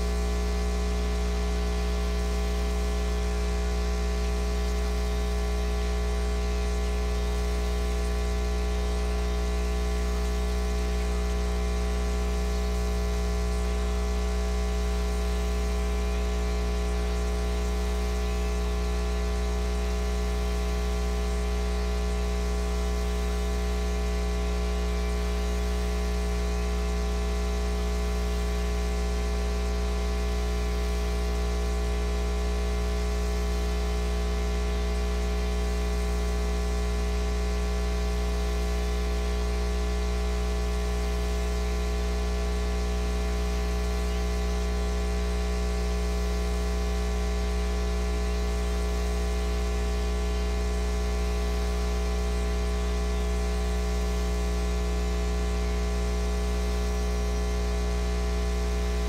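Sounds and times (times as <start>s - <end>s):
electrical mains hum: 0.0s - 59.0s
hiss and static: 0.0s - 59.0s.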